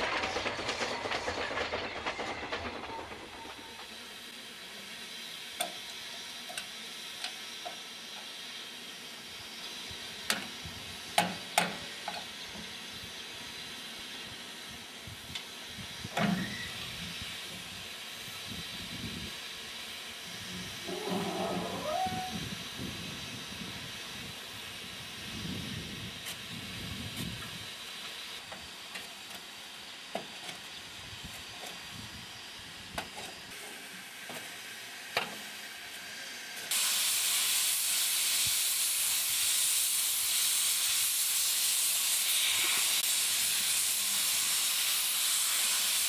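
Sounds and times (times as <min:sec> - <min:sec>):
train rumbling past: 0:00.0 - 0:04.4, 0:15.9 - 0:27.8
steam locomotive hissing: 0:00.0 - 0:46.0.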